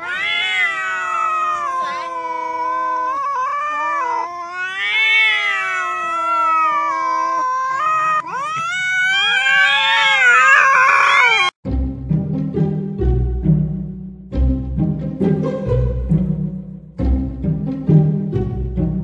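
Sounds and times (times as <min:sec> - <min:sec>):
cats yowling: 0:00.0 - 0:11.6.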